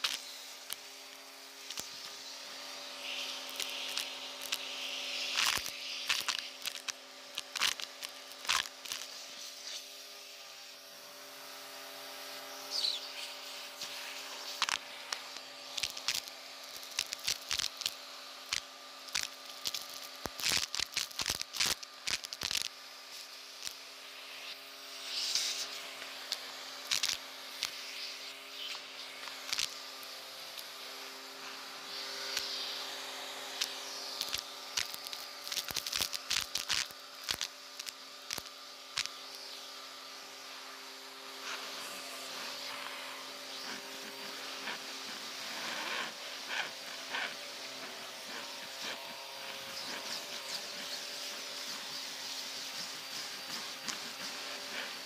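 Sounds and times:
debris clicking up nozzle: 0:00.0 - 0:02.3, 0:03.0 - 0:09.2, 0:13.8 - 0:23.8, 0:25.1 - 0:32.8, 0:33.6 - 0:39.6
vacuum cleaner running: 0:00.0 - 0:55.0.

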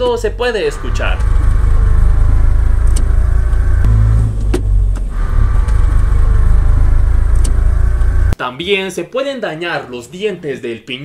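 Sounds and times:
car interior rumble: 0:00.0 - 0:08.4
differential whine: 0:00.0 - 0:08.4.

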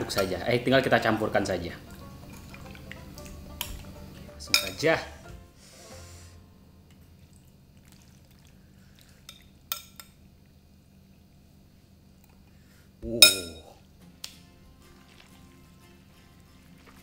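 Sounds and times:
metal spoon clinking on bowl: 0:04.5 - 0:04.8.

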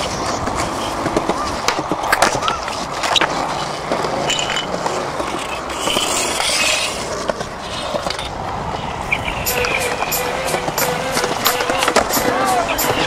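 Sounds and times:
skateboard wheels rolling on concrete: 0:00.0 - 0:13.0
skateboard knock: 0:09.6 - 0:13.0.

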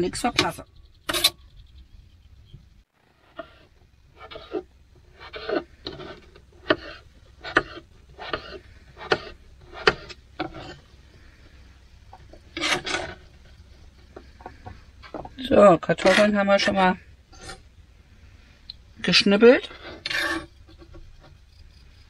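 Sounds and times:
knife scraping across board: 0:03.2 - 0:17.7, 0:19.3 - 0:21.4.

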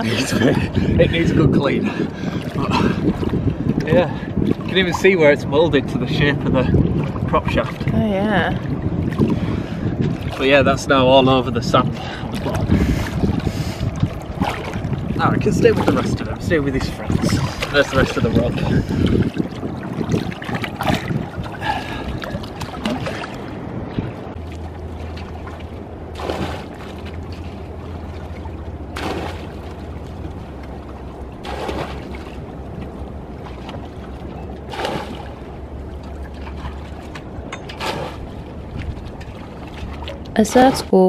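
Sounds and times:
steady low hum: 0:00.0 - 0:41.0
bucket of water splashing: 0:08.6 - 0:10.6, 0:12.0 - 0:23.6, 0:24.3 - 0:40.7.

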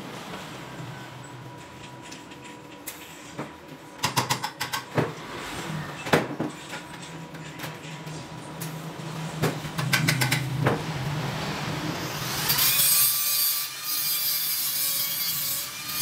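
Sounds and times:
low background hum: 0:00.0 - 0:12.8.

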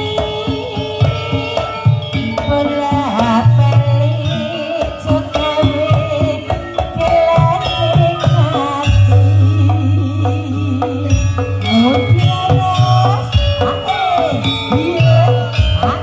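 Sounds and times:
loud music through sound system: 0:11.1 - 0:16.0.

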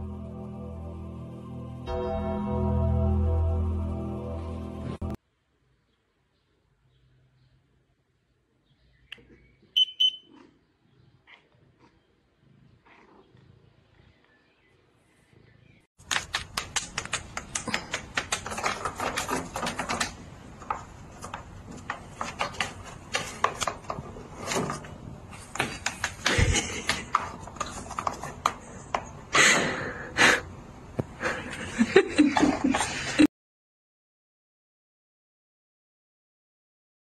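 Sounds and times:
hamster claws scrabbling: 0:16.0 - 0:24.8.

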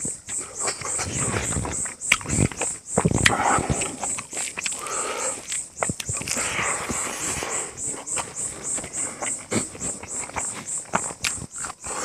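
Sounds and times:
chewing and lip-smacking: 0:00.0 - 0:12.0.

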